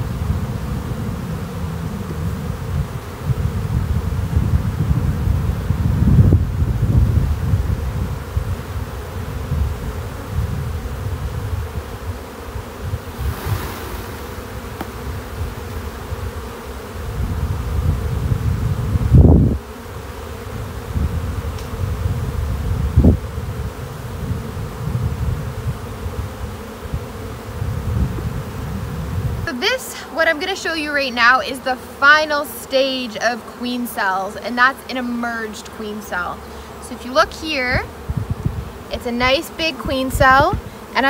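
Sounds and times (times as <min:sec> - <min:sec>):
honeybees buzzing: 0:00.0 - 0:41.0
dull thump: 0:13.1 - 0:15.5
low rumbling noise: 0:13.1 - 0:15.6.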